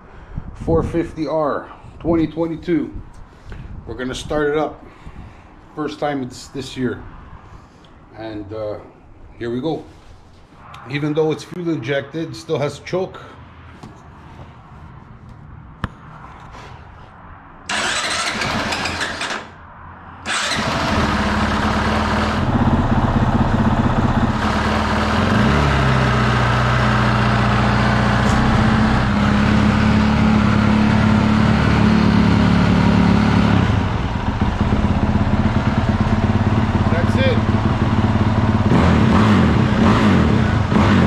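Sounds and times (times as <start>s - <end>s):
motorcycle engine cranking: 17.7s - 19.6s, 20.3s - 22.6s.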